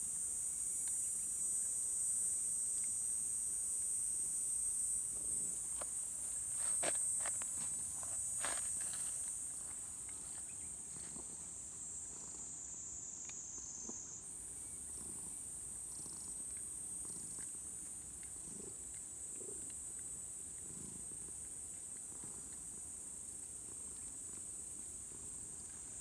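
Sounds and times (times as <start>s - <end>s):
high-pitched insect chorus: 0.0s - 18.7s
cat purring: 5.1s - 26.0s
brush stroking through fur: 5.5s - 12.4s.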